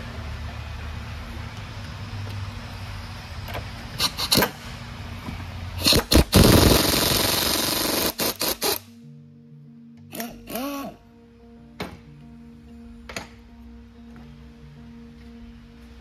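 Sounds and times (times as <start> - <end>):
pneumatic impact wrench hammering: 4.0 - 4.6, 5.8 - 8.9, 10.1 - 10.9.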